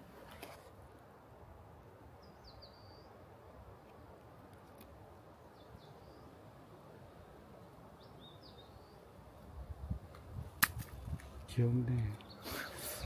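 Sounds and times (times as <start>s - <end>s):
faint bird chirps: 2.2s - 3.2s, 8.0s - 9.1s, 12.0s - 13.0s
sharp click of plastic box: 10.6s - 11.0s.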